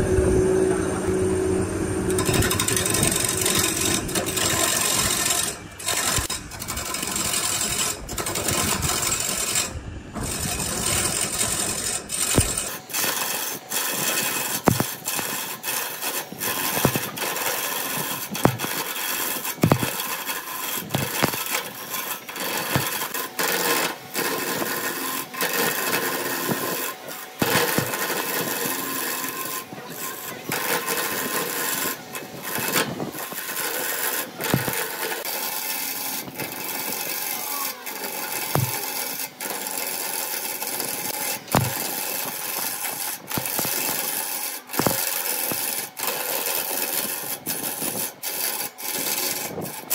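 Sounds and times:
lathe tool scraping wood: 0:00.0 - 0:49.9
sharp clicks and knocks: 0:02.1 - 0:24.8, 0:25.4 - 0:28.6, 0:34.4 - 0:35.3, 0:38.4 - 0:39.2, 0:40.7 - 0:44.2, 0:44.8 - 0:46.2.

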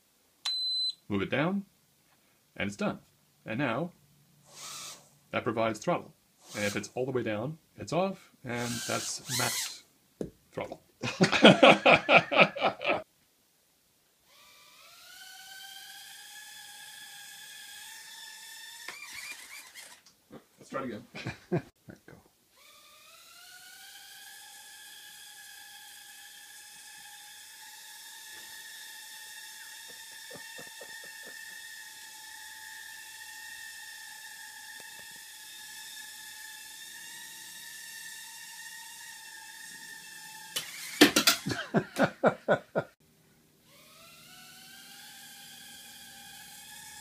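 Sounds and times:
quadcopter motors whining: 0:04.4 - 0:05.1, 0:06.4 - 0:06.9, 0:08.6 - 0:09.8, 0:14.3 - 0:20.1, 0:22.6 - 0:42.9, 0:43.6 - 0:47.0.

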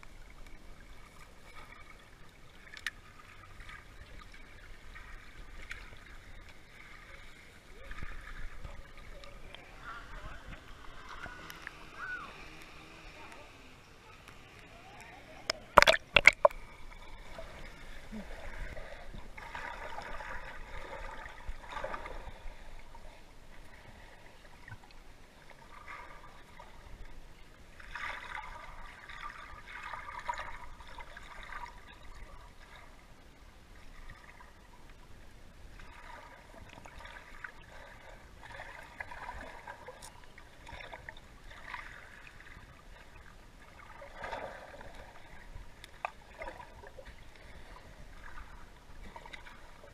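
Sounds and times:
muffled underwater gurgling: 0:07.1 - 0:22.6.

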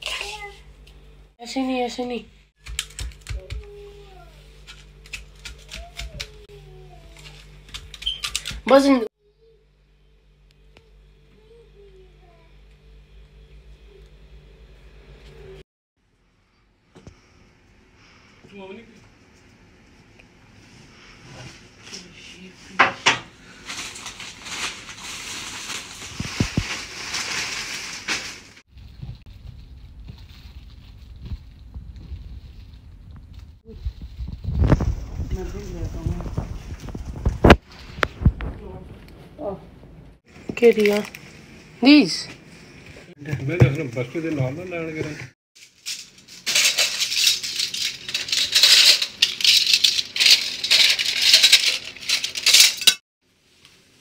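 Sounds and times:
plastic wrappers crinkling: 0:23.5 - 0:33.1, 0:40.6 - 0:41.4, 0:45.6 - 0:53.0
plastic spoons clattering in cup: 0:45.8 - 0:53.0.

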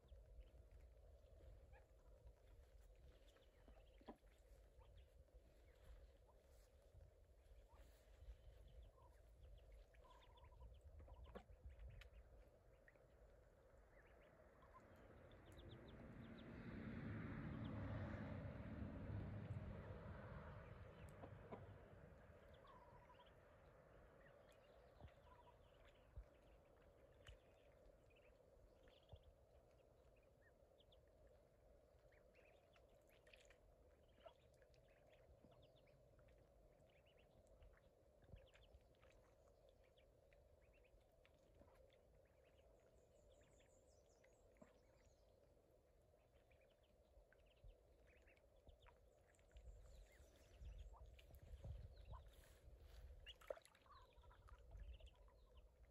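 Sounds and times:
ducklings peeping: 0:00.0 - 0:16.8, 0:20.5 - 0:55.9
low hum: 0:00.0 - 0:55.9.

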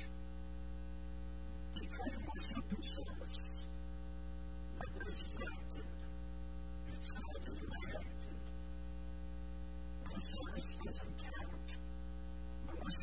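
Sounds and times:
electrical mains hum: 0:00.0 - 0:13.0
faint voice speaking: 0:01.7 - 0:03.7, 0:04.8 - 0:06.2, 0:06.8 - 0:08.6, 0:10.0 - 0:11.9, 0:12.6 - 0:13.0.

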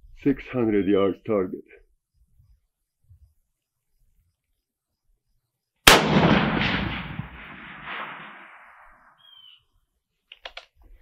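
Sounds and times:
rifle shot with echo: 0:05.8 - 0:09.2
bullet striking steel target: 0:05.9 - 0:09.1.

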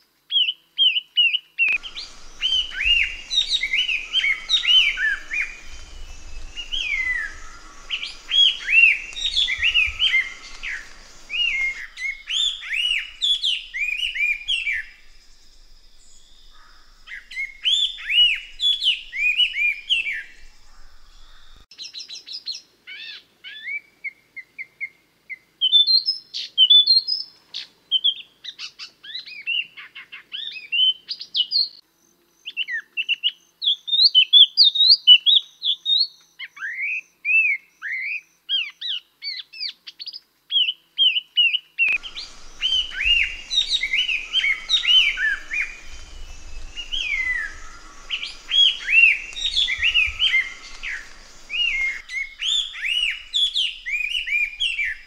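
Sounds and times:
bird whistled chirps: 0:01.7 - 0:21.7, 0:41.9 - 0:55.0
background hiss with high drone: 0:01.7 - 0:22.0, 0:41.9 - 0:55.0.

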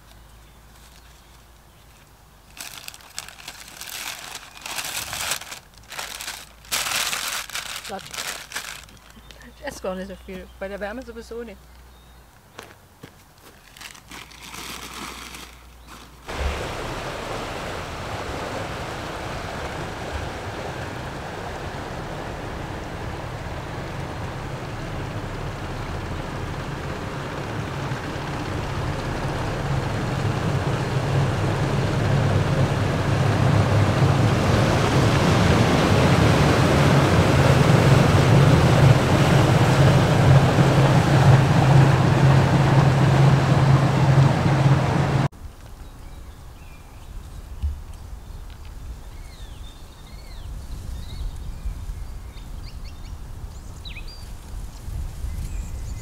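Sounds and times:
rushing noise: 0:16.3 - 0:45.3
steady low hum: 0:16.3 - 0:45.3.

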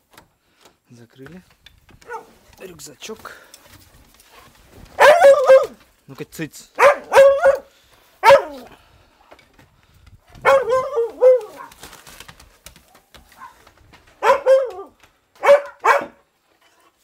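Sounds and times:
dog barking: 0:02.0 - 0:02.4, 0:04.9 - 0:05.8, 0:06.8 - 0:08.8, 0:10.4 - 0:11.8, 0:12.8 - 0:13.6, 0:14.2 - 0:16.3.

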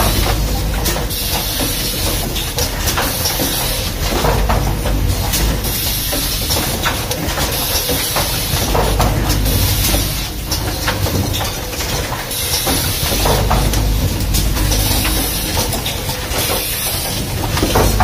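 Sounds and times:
machine clicks and knocks: 0:00.0 - 0:18.0
mechanical rumble: 0:00.0 - 0:18.0.

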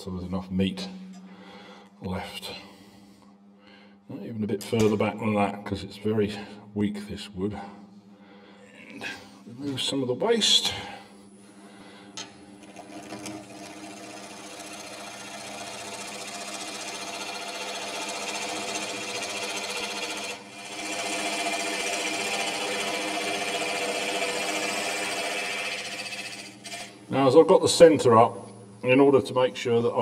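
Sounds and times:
wood lathe gouge cutting: 0:12.7 - 0:26.9.

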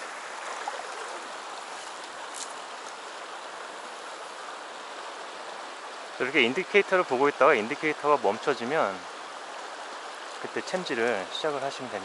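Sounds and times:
river water rushing over rocks: 0:00.0 - 0:12.0.

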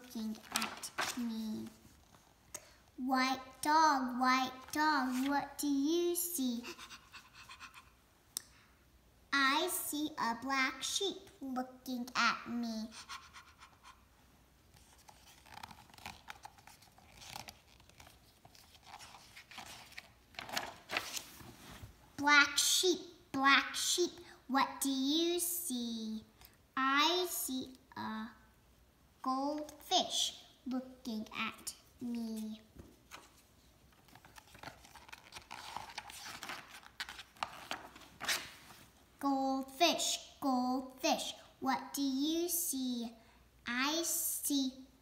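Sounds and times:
book page turning: 0:00.2 - 0:02.2, 0:04.6 - 0:05.4, 0:14.7 - 0:22.0, 0:32.4 - 0:39.0.

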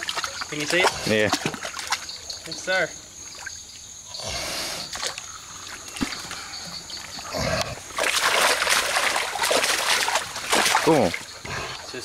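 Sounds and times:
rustling in wet undergrowth: 0:04.8 - 0:12.0.

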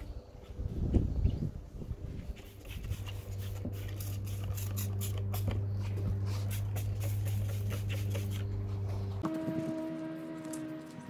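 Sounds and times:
steady low hum: 0:00.0 - 0:10.6
spray bottle squirting: 0:02.4 - 0:05.6, 0:06.3 - 0:08.5.

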